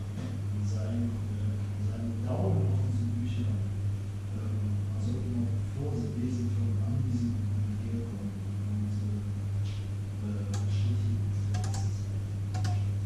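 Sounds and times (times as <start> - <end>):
microwave oven humming: 0.0 - 13.0
small clicks and ticks: 11.5 - 11.9, 12.5 - 12.8.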